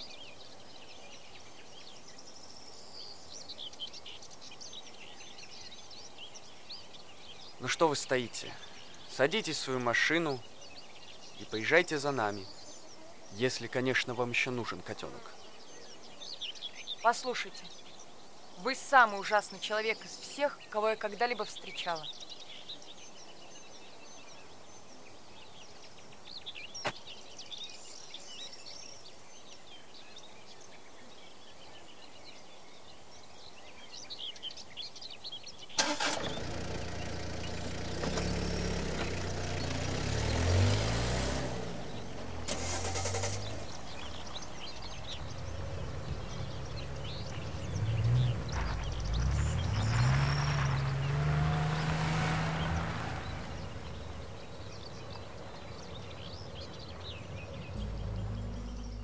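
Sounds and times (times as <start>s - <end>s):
birds chirping: 0.0s - 59.0s
car engines revving: 35.8s - 59.0s.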